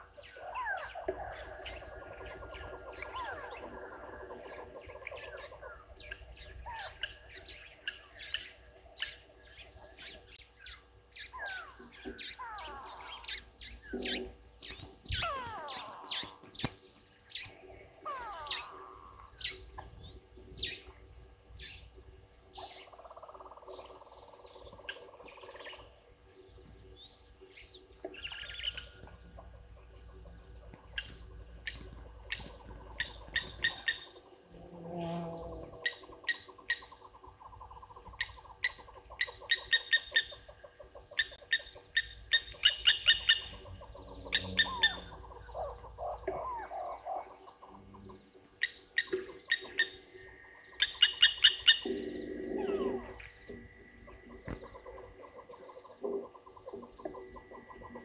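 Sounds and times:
bird calls: 0.0s - 58.0s
high insect drone: 0.0s - 58.0s.

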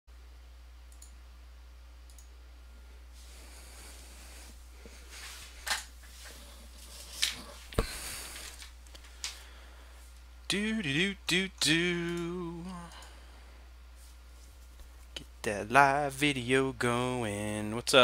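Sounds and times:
steady low hum: 0.1s - 18.0s
sharp clicks: 11.6s - 13.1s.

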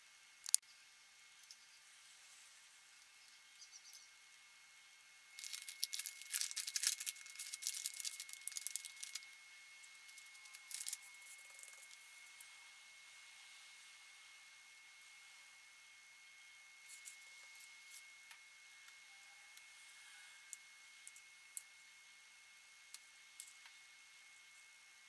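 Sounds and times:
plastic wrap crinkling: 5.4s - 9.4s, 10.0s - 12.2s.

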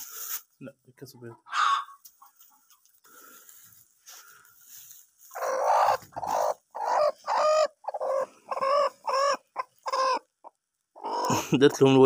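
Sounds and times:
hen clucking: 1.1s - 2.9s, 5.3s - 12.0s.

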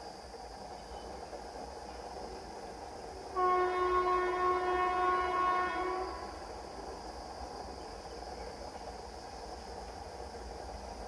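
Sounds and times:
locomotive air horn blast: 3.4s - 6.3s.

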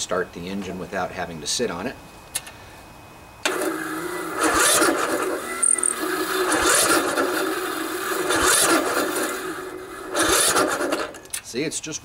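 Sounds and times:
electric starter cranking engine: 3.4s - 11.4s.

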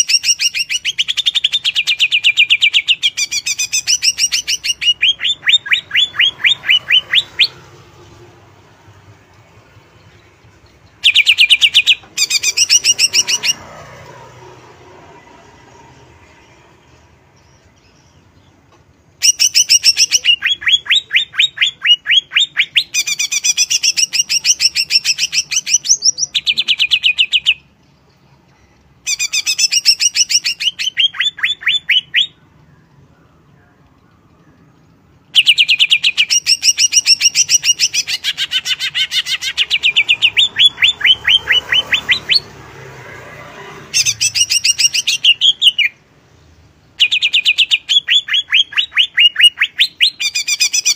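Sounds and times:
bird singing whistled phrases: 0.0s - 7.6s, 19.2s - 27.6s, 29.1s - 32.9s, 35.3s - 42.5s, 44.0s - 46.0s, 47.0s - 50.9s.

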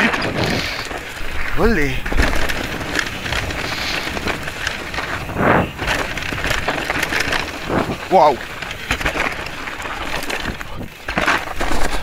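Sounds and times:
wind on microphone: 0.0s - 8.3s
bike clicks and knocks: 0.0s - 12.0s
tyres rushing on snow: 0.0s - 12.0s.

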